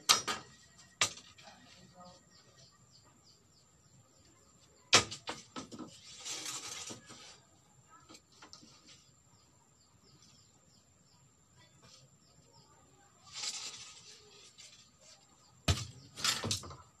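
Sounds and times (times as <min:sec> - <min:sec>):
bamboo strips clattering: 0:05.0 - 0:07.5, 0:13.2 - 0:17.0
bamboo strips scraping rustle: 0:05.2 - 0:09.2, 0:13.1 - 0:16.7.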